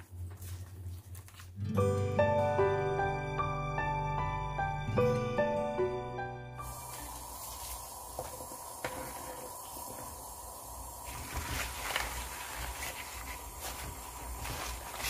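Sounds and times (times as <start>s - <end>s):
water boiling and bubbling: 6.6s - 15.0s
stems rustling and sloshing: 11.0s - 15.0s.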